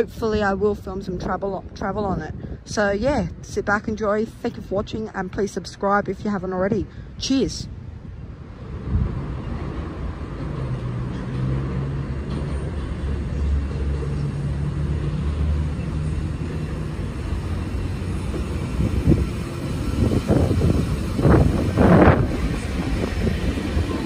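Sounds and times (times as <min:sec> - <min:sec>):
electric train passing: 0:07.8 - 0:24.0.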